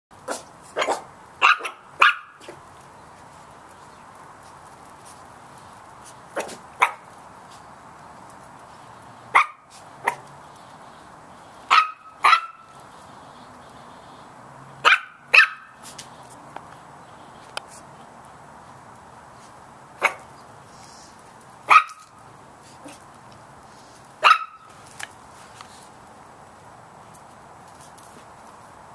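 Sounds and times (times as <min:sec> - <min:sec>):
puppies yapping: 0:09.3 - 0:10.3, 0:11.7 - 0:12.8.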